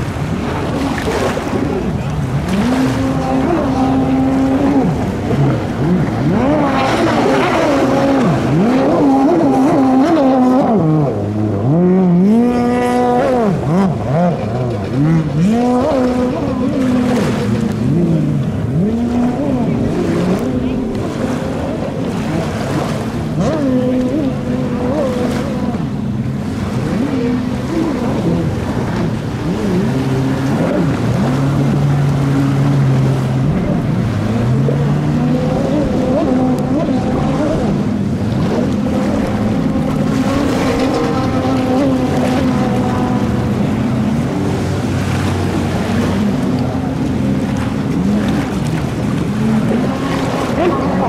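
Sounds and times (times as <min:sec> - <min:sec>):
jet ski engines revving: 0:00.0 - 0:51.0
wind and water hiss: 0:00.0 - 0:51.0.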